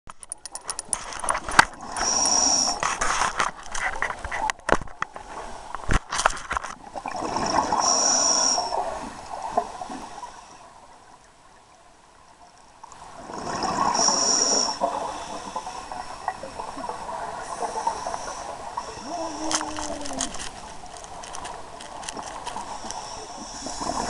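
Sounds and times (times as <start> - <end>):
sharp clicks: 0.1 - 2.1
diver breathing through regulator: 1.8 - 3.0, 7.5 - 8.9, 13.4 - 16.3, 17.4 - 20.3, 22.6 - 24.0.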